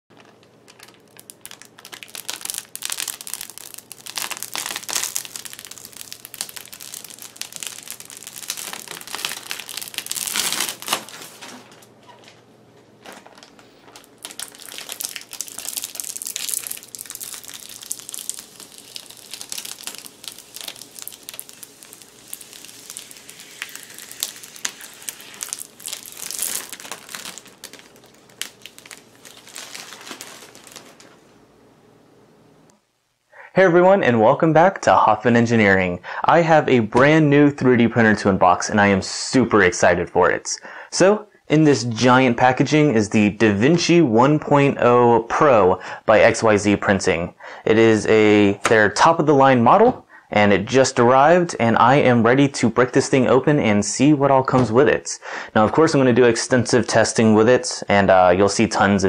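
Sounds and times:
plastic bag crinkling: 0.1s - 31.4s.

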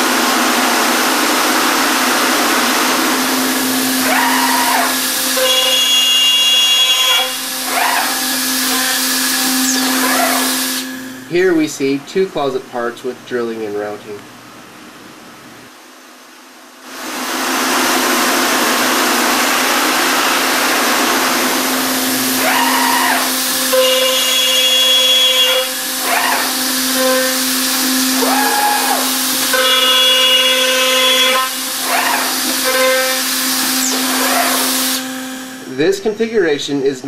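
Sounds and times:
spindle motors winding up and down: 0.0s - 11.4s, 18.0s - 35.7s
high whine of spindle cutting: 0.0s - 11.6s, 17.5s - 35.7s
steady machine hum: 0.0s - 37.0s.

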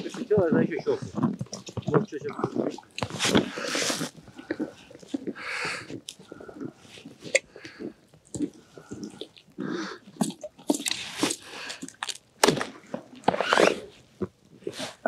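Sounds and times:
snow crunching: 0.0s - 4.3s.

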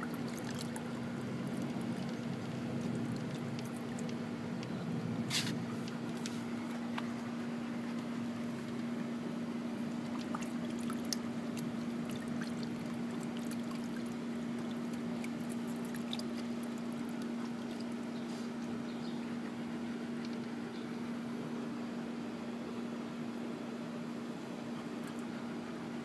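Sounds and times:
dog splashing water in bucket: 0.0s - 4.2s, 9.8s - 18.2s
small ticks of water: 0.0s - 4.8s, 9.9s - 20.6s, 25.0s - 25.3s
steady hum: 0.0s - 26.0s.

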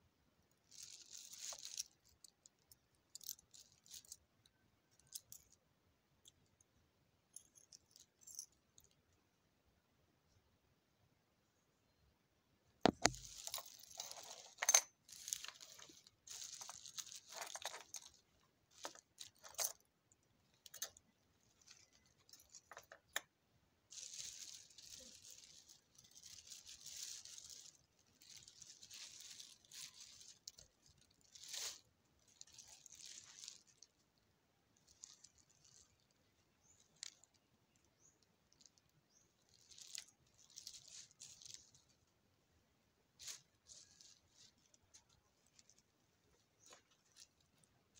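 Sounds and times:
plastic bag rustling: 0.7s - 2.3s, 12.9s - 19.8s, 23.9s - 34.1s, 34.8s - 37.3s, 38.0s - 42.1s, 43.2s - 47.7s.

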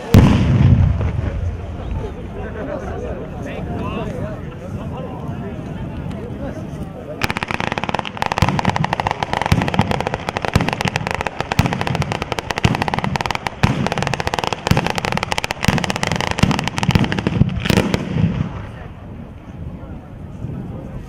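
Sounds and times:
heavy firecracker bangs: 0.0s - 1.9s, 7.2s - 18.9s
firecrackers crackling: 0.0s - 2.5s, 4.1s - 19.5s.

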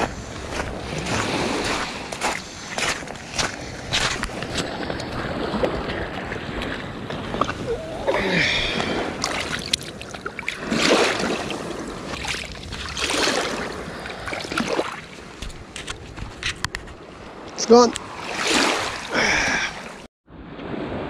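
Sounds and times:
small waves on shingle: 0.0s - 7.8s, 8.7s - 16.5s, 17.3s - 20.0s
water sloshing around a hand: 0.2s - 15.5s.

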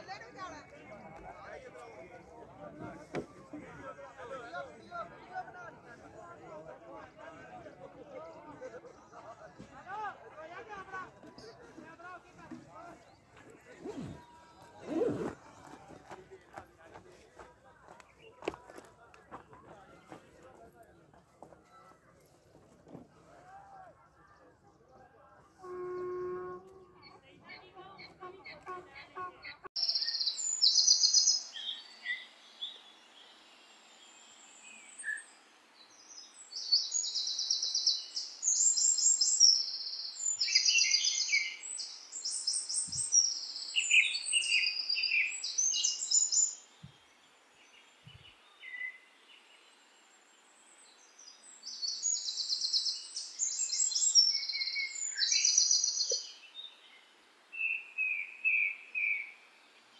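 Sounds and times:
small birds trilling: 29.8s - 33.5s, 50.8s - 59.3s
steady background hiss: 30.4s - 39.4s, 40.2s - 59.9s.

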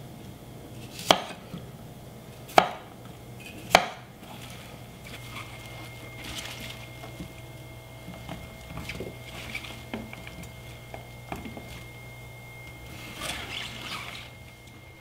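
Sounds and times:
faint hum: 0.0s - 15.0s
crunchy rustle: 4.2s - 12.0s.

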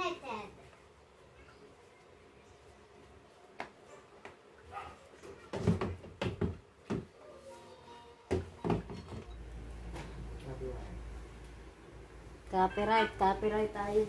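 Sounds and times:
hollow knocks and thumps of plastic panels: 5.4s - 7.1s.

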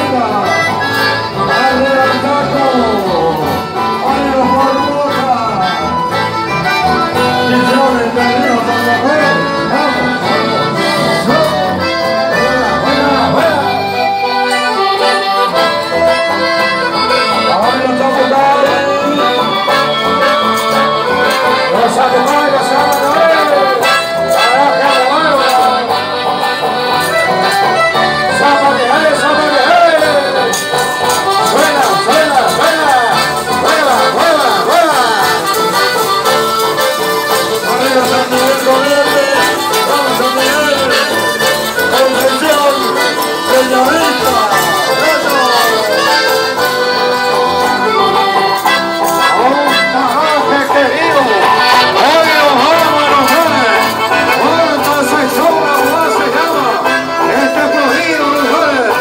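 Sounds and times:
accordion-led folk band playing: 0.0s - 59.0s.

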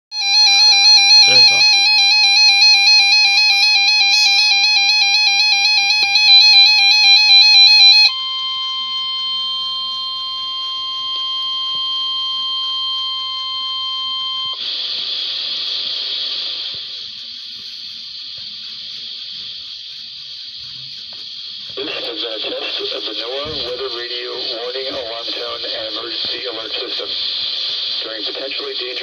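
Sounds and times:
warbling electronic alert alarm: 0.1s - 14.6s
steady high tone: 0.1s - 14.7s
radio static hiss: 1.2s - 1.6s, 14.4s - 29.0s.

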